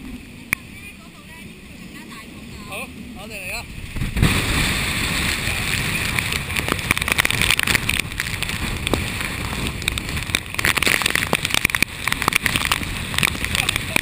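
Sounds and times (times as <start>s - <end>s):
wind buffeting microphone: 0.0s - 14.0s
rain striking camera: 3.7s - 14.0s.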